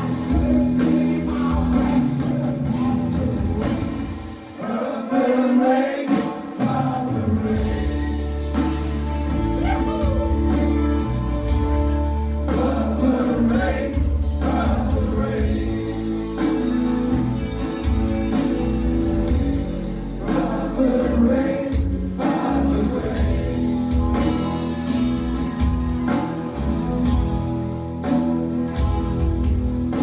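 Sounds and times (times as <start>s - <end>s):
electric guitar: 0.0s - 4.6s, 7.4s - 30.0s
man singing lead: 0.0s - 8.6s, 12.3s - 17.4s, 19.0s - 25.2s
drums: 0.0s - 30.0s.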